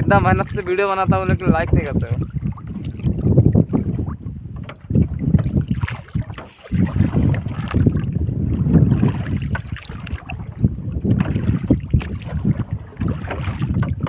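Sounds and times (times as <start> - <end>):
wind buffeting microphone: 0.0 - 14.0
small knocks and ticks of line: 4.6 - 5.5.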